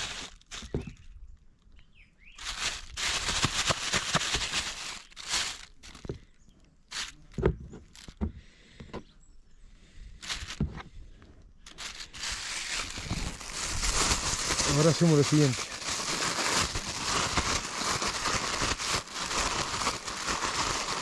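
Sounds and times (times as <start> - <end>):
plastic bag rustling and crinkling: 0.0 - 1.1, 2.4 - 6.3, 6.9 - 8.2, 10.2 - 10.8, 11.6 - 21.0.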